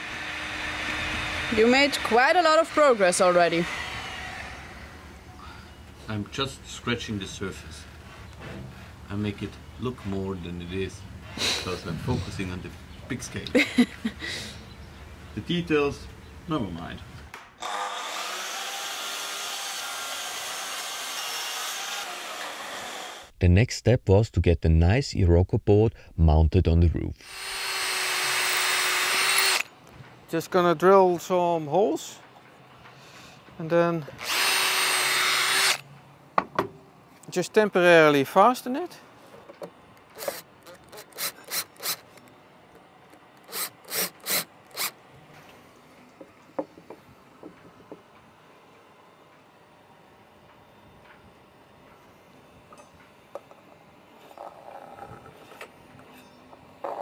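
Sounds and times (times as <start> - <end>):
cordless drill boring through wood: 0.0 - 4.9, 17.6 - 23.3, 27.2 - 29.7, 34.2 - 35.8, 40.2 - 42.1, 43.4 - 45.0
miter saw whirring: 0.0 - 5.2, 17.6 - 23.3, 27.2 - 29.7, 34.2 - 35.8, 43.3 - 45.0.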